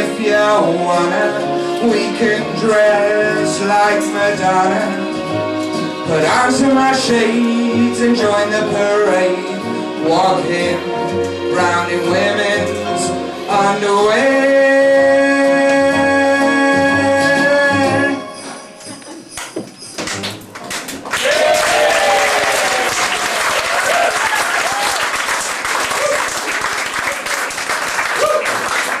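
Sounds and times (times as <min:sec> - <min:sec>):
audience applause: 0:20.2 - 0:29.0
whoops and cheers: 0:21.2 - 0:25.2, 0:25.8 - 0:26.3, 0:28.1 - 0:28.7.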